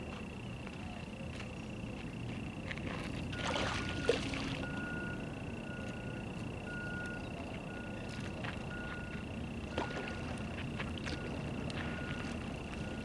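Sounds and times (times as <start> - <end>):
low outdoor rumble: 0.0 - 13.0
fish splashing at the surface: 3.4 - 4.6
steady high-pitched tone: 3.4 - 13.0.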